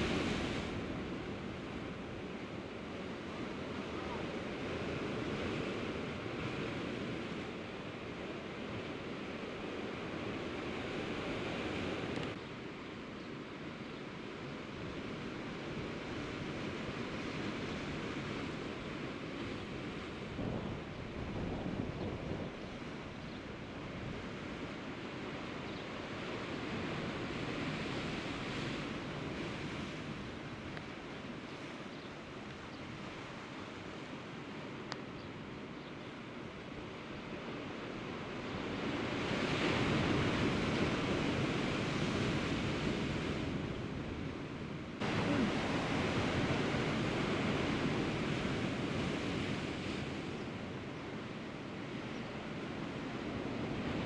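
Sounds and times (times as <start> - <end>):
sea waves washing against rocks: 39.0 - 50.9.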